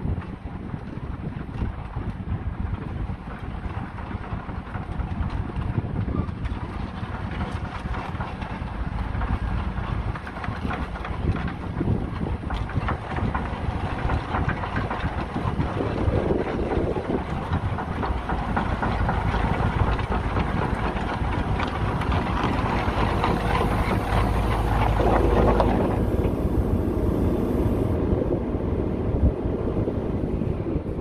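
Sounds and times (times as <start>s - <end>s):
wind noise on microphone: 0.0s - 31.0s
excavator diesel engine running: 1.8s - 31.0s.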